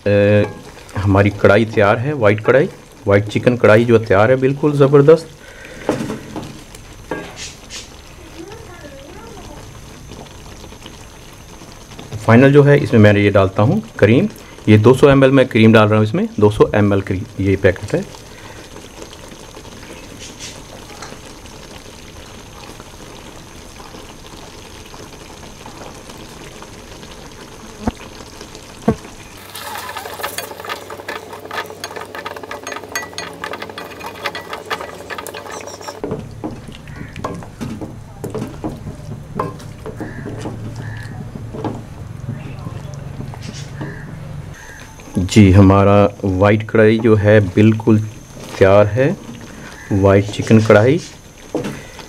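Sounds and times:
cream pouring from carton: 0:25.6 - 0:32.8
wooden spoon scraping a pan: 0:28.9 - 0:44.8.

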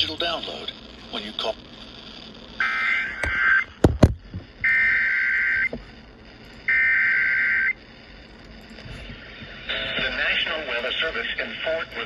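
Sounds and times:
buzzing alert data tones: 0:02.6 - 0:03.8, 0:04.5 - 0:07.8
knocks from radio handling: 0:03.2 - 0:04.2.

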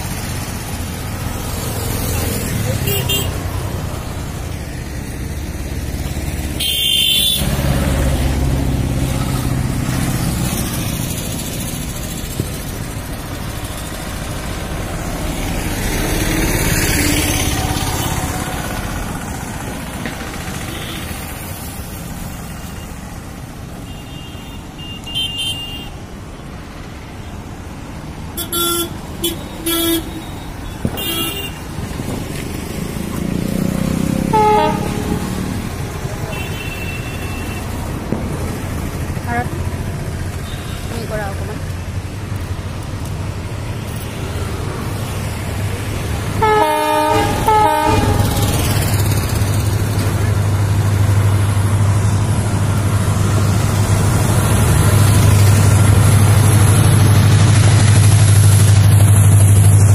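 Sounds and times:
passing road traffic: 0:00.0 - 0:59.9
vehicle horns tooting: 0:02.7 - 0:03.4, 0:06.6 - 0:07.5, 0:23.8 - 0:26.0, 0:28.4 - 0:31.6, 0:34.2 - 0:35.6, 0:36.2 - 0:37.8, 0:46.4 - 0:48.9.

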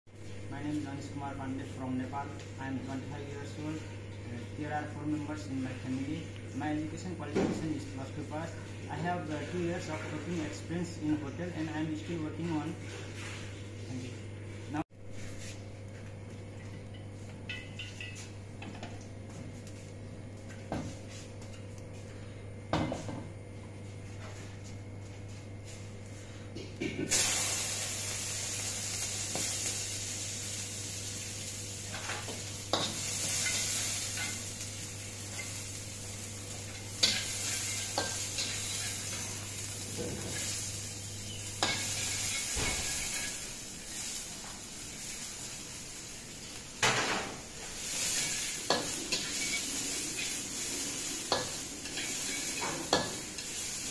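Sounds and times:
steady low hum: 0:00.1 - 0:53.9
vegetables sizzling in a wok: 0:27.1 - 0:53.9.

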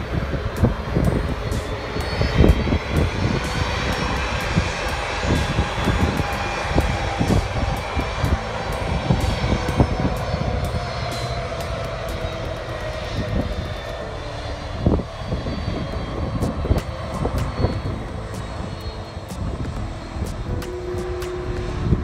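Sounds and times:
jet engine whine: 0:00.0 - 0:22.0.

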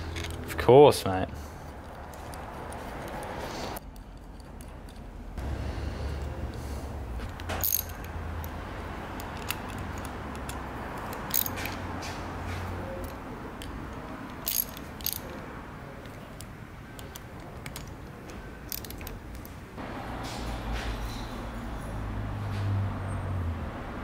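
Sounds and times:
steady low hum: 0:04.0 - 0:09.2
torque wrench clicks: 0:07.3 - 0:08.6, 0:14.3 - 0:15.4, 0:18.7 - 0:19.2
wrench ratcheting ticks: 0:07.4 - 0:08.6, 0:09.2 - 0:11.7, 0:14.3 - 0:15.4, 0:18.7 - 0:19.1.

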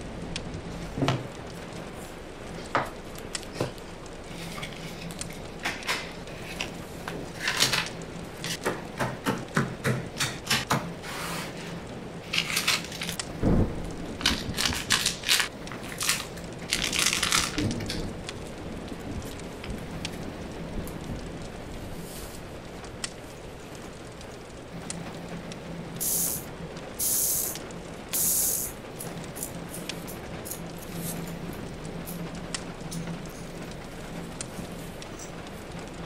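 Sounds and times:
plastic crinkling: 0:11.4 - 0:24.4.

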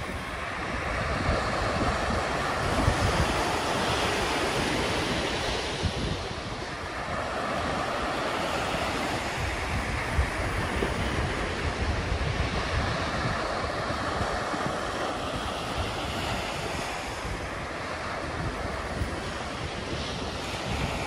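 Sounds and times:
small waves washing up a beach: 0:00.0 - 0:21.0
wind rumbling on microphone: 0:00.0 - 0:21.0.

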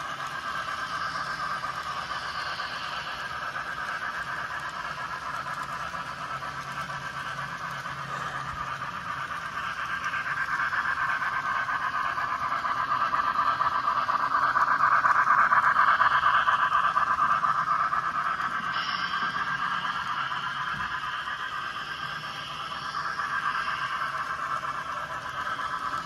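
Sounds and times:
model trains running on track: 0:00.0 - 0:26.0.

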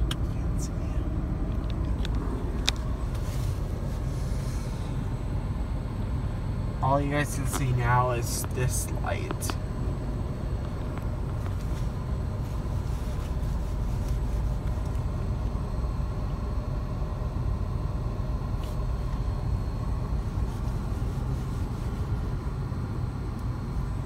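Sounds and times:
vehicle engines idling: 0:00.0 - 0:24.0.

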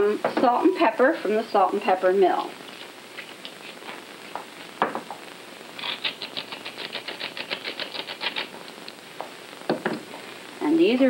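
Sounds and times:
knock: 0:04.8 - 0:05.1, 0:09.7 - 0:10.0.

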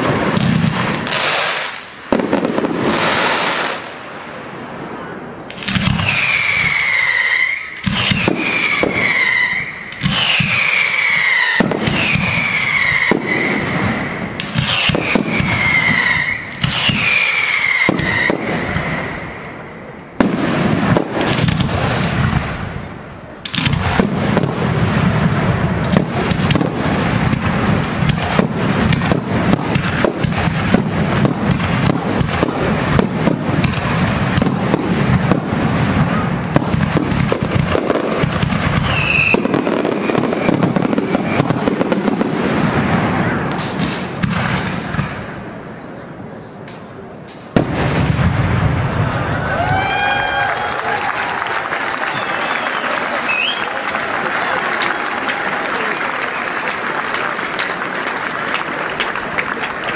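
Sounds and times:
firework bangs and crackling: 0:00.0 - 0:46.0, 0:46.6 - 0:59.9
falling firework whistles: 0:04.6 - 0:19.6, 0:34.4 - 0:42.3, 0:48.9 - 0:53.8.

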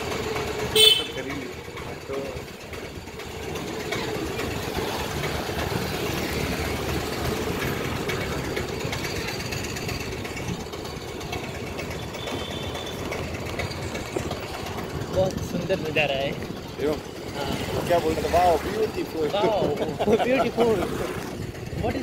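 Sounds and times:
road noise: 0:00.0 - 0:22.0
vehicle engine running: 0:00.0 - 0:22.0.

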